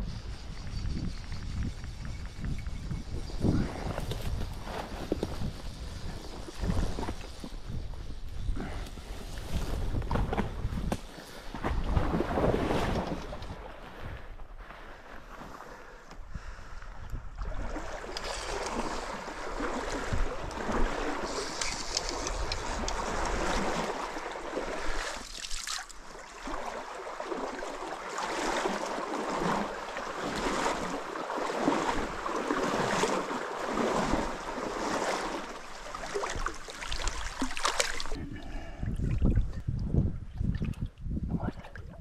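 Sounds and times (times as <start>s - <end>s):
water splashing from wading: 17.4s - 38.2s.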